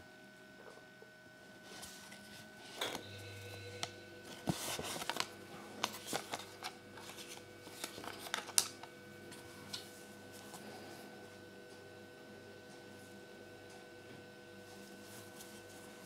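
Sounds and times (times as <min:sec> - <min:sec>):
paper leaflet rustling and crinkling: 0:04.3 - 0:10.7.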